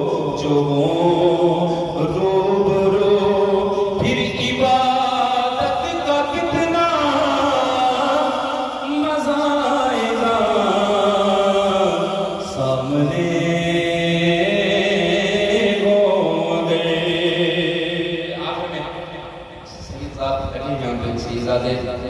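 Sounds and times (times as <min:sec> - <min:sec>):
man chanting into a microphone: 0:00.0 - 0:22.0.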